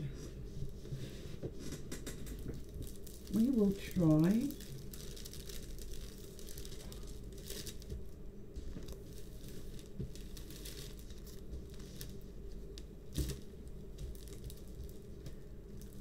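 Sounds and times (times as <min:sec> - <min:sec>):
plastic film crinkling: 0:02.4 - 0:16.0.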